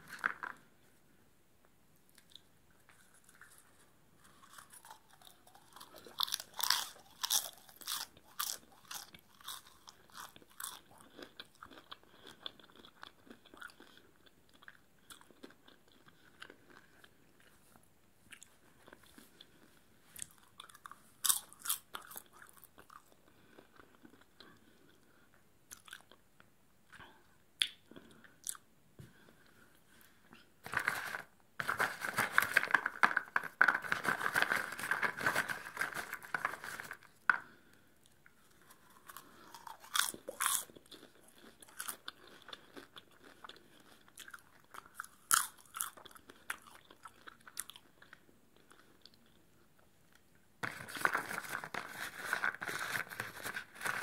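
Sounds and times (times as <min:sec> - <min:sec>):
chewing crunchy popcorn: 0:02.1 - 0:25.1, 0:25.7 - 0:26.2, 0:30.6 - 0:49.5
hand rummaging through popcorn: 0:30.6 - 0:37.1, 0:50.6 - 0:54.0.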